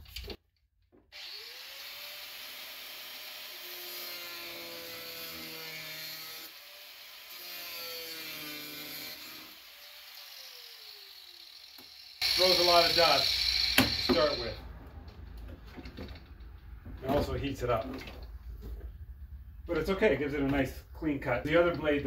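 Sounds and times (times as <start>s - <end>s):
angle grinder cutting plastic: 1.1s - 14.6s.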